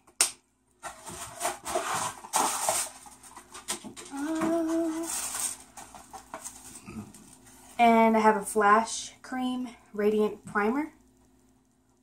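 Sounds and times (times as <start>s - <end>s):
packaging rustling and crinkling: 0.8s - 7.7s
woman humming: 4.1s - 5.2s.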